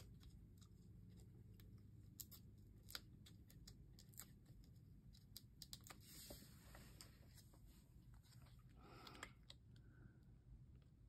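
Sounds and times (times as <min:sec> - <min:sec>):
quiet room hum: 0:00.0 - 0:11.0.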